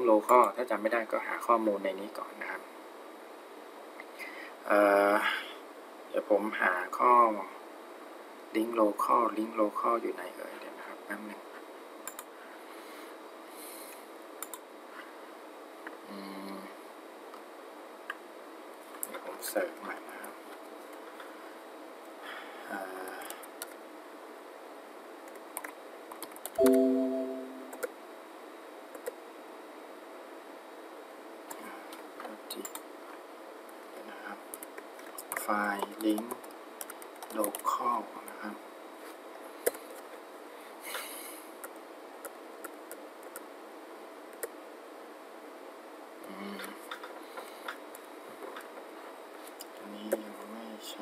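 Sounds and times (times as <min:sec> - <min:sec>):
steady background hiss: 0:00.0 - 0:51.0
computer keys clicking: 0:12.0 - 0:12.3, 0:14.4 - 0:14.6, 0:25.3 - 0:27.9, 0:28.9 - 0:29.2, 0:32.5 - 0:32.8, 0:34.5 - 0:37.7, 0:41.6 - 0:43.4
computer mouse clicks: 0:12.0 - 0:12.3, 0:14.4 - 0:14.6, 0:28.9 - 0:29.2, 0:32.5 - 0:32.8
loud pitched ring: 0:26.6 - 0:27.8.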